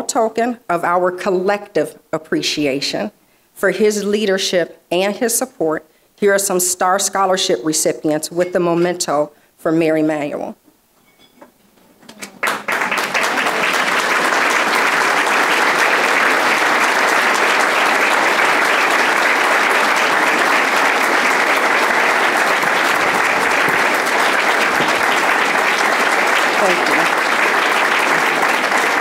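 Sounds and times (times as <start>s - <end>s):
audience applauding: 12.1s - 29.0s.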